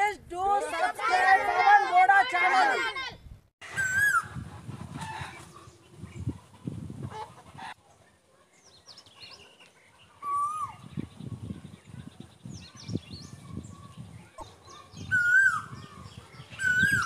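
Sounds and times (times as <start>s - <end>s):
small birds chirping: 5.0s - 17.0s.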